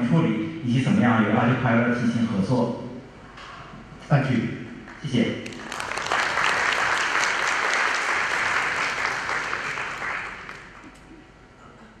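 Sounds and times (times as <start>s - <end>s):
audience applauding: 5.4s - 11.0s.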